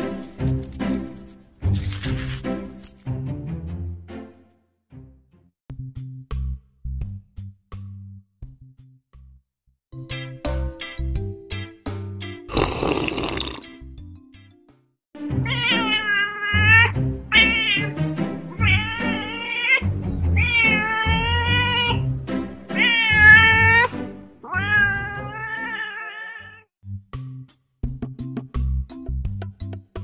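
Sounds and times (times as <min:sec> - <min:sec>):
cat meowing: 0:15.4 - 0:22.1, 0:22.7 - 0:26.7.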